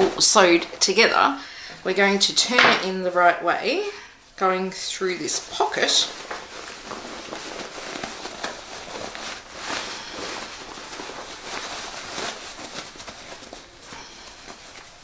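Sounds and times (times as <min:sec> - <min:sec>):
fabric rustling: 0:04.3 - 0:15.0.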